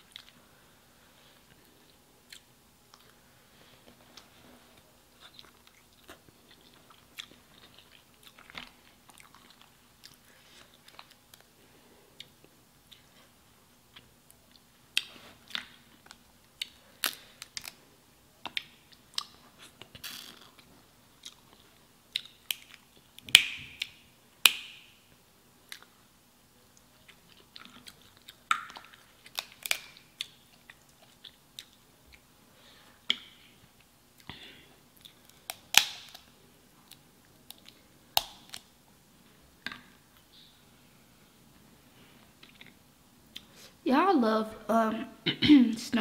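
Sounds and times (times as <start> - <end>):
chewing and wet mouth clicks: 5.2 - 10.2
crab shell crackling and snapping: 15.6 - 17.8, 27.5 - 30.4, 35.2 - 36.3.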